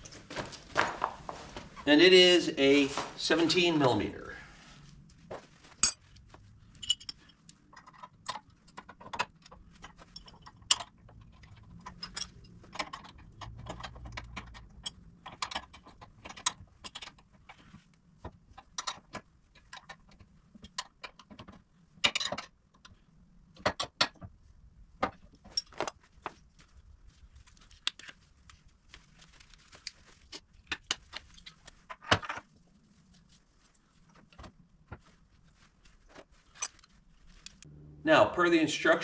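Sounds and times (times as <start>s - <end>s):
metal hand tools clinking: 5.8s - 6.0s.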